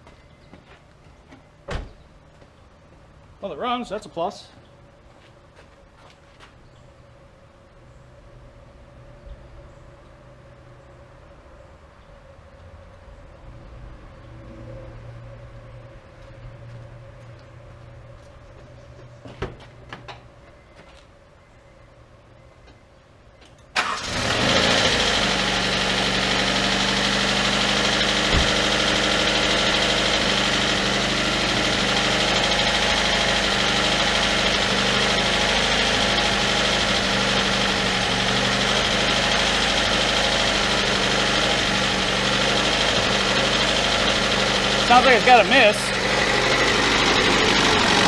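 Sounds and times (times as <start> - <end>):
car engine starting and idling: 23.7 - 48.0.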